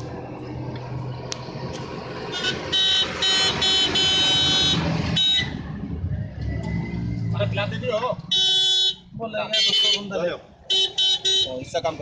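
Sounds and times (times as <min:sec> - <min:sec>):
vehicle horn honking: 0:02.3 - 0:05.6, 0:08.3 - 0:10.1, 0:10.7 - 0:11.7.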